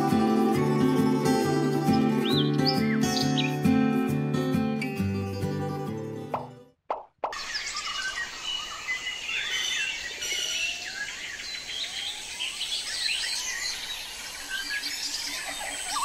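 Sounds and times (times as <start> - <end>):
birds chirping: 0.0 - 3.8, 7.3 - 16.0
outdoor background noise: 6.9 - 16.0.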